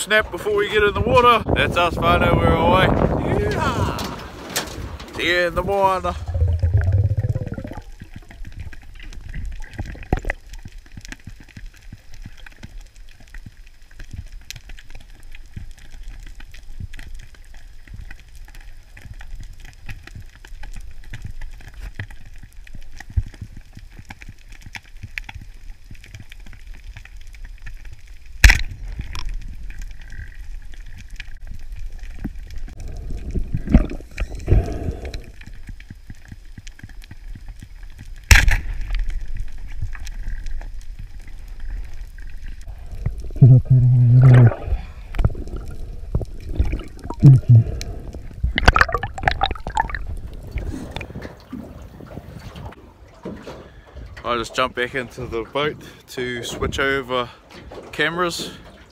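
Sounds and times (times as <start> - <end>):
muffled bursts: 5.6 - 8.0
low muffled underwater rumble: 5.7 - 12.1, 38.8 - 52.6
faint crackling clicks: 6.2 - 51.6
speargun shot crack: 28.4 - 28.7, 38.3 - 38.7.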